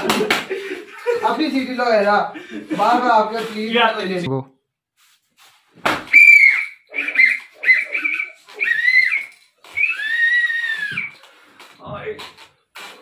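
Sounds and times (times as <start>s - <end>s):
slipper slap: 5.7s - 6.2s
whistle toots: 6.1s - 11.2s.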